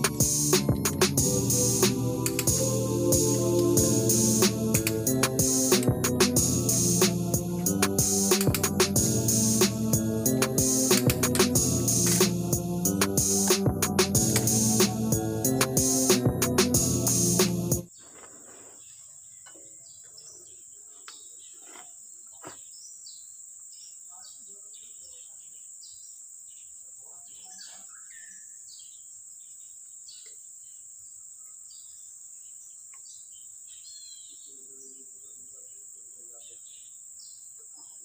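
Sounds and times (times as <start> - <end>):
high insect drone: 0.0 - 17.6
bird chirps: 17.9 - 38.0.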